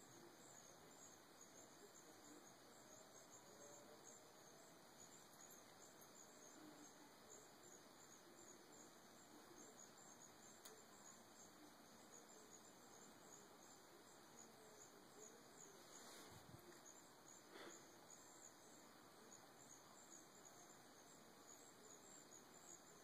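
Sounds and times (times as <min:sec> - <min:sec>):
insects chirping: 0:00.0 - 0:23.0
faint click: 0:10.6 - 0:10.8.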